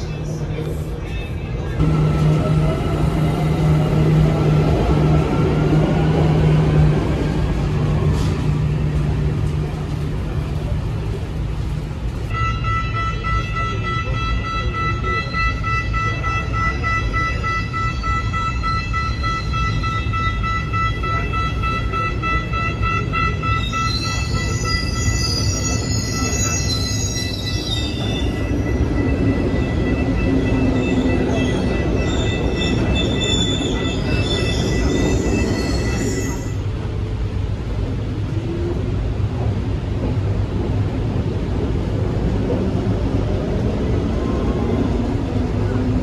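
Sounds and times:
train rumbling on rails: 0:00.0 - 0:46.0
wavering high squeals: 0:23.6 - 0:36.6.

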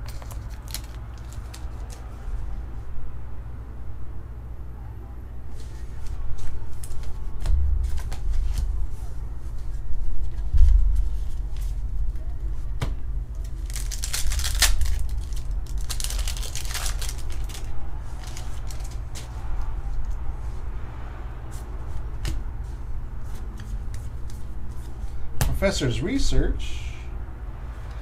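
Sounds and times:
foil wrapper crinkling and tearing: 0:00.0 - 0:02.3, 0:13.4 - 0:19.2.

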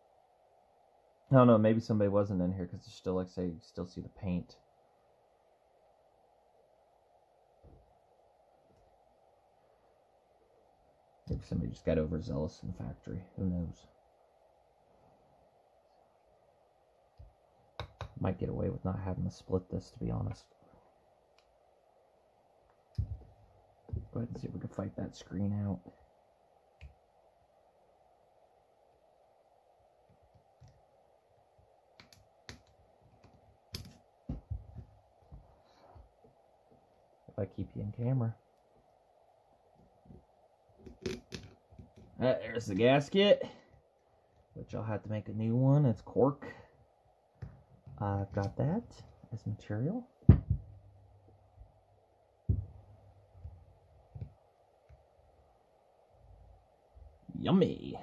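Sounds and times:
faint steady hum: 0:00.0 - 0:58.0
metal part knocking on workbench: 0:50.3 - 0:50.7.

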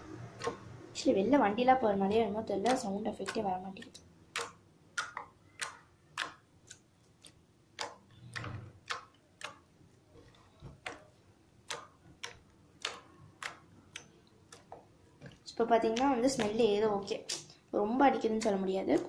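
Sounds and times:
slime squashed clicking and popping: 0:02.6 - 0:09.6, 0:10.8 - 0:16.6.

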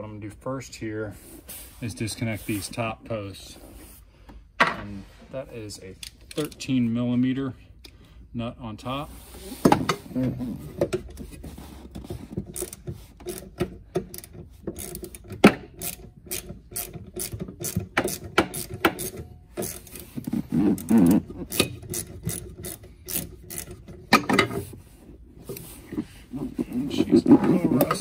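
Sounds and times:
ratcheting wrench clicking: 0:12.5 - 0:24.0.

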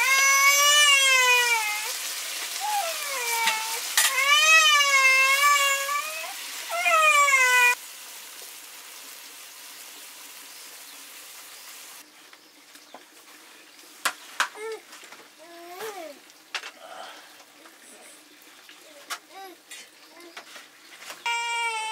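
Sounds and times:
food sizzling in frying: 0:00.0 - 0:15.4
high-pitched wavering cries: 0:21.3 - 0:21.9.

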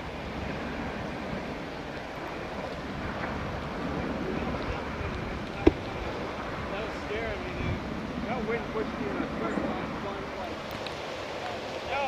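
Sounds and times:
wind on microphone: 0:00.0 - 0:10.3
helicopter flying overhead: 0:00.0 - 0:12.0.

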